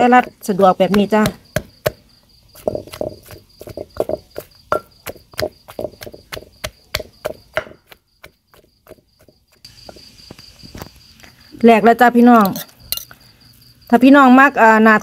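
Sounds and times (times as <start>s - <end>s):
wooden pestle pounding in mortar: 0.0s - 10.2s.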